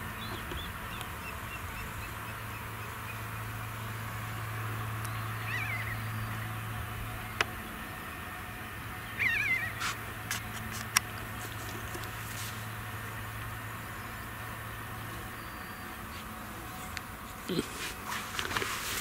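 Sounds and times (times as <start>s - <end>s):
distant engines droning: 0.0s - 19.0s
animal wavering call: 5.4s - 6.1s, 9.2s - 9.8s.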